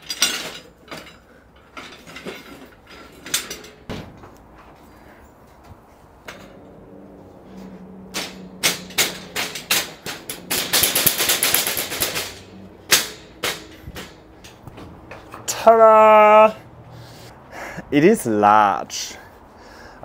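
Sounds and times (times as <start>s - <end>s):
rattling scrape: 0.0s - 15.5s
wire shelf knocking and clattering: 7.9s - 15.6s.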